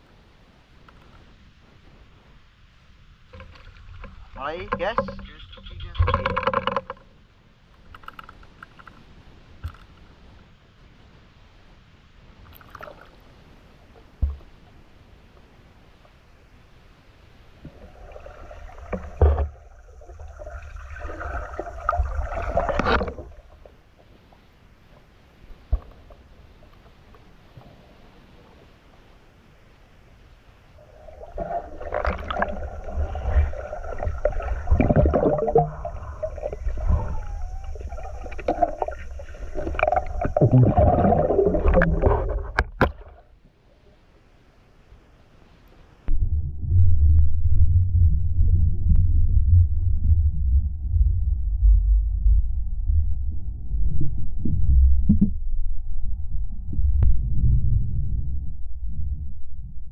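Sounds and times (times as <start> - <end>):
water sloshing and gurgling: 3.2 - 10.4, 12.4 - 14.6, 17.5 - 28.5, 30.8 - 43.4
faint hiss: 7.2 - 46.1
water churning: 17.6 - 24.0, 30.8 - 43.4.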